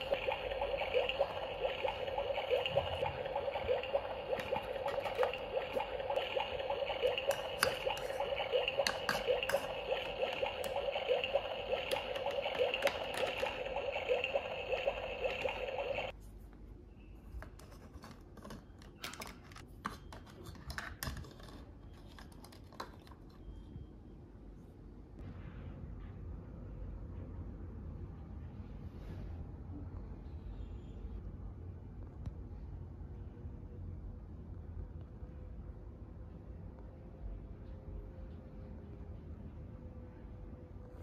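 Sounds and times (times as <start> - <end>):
toy boiling water sound effect: 0.0 - 16.1.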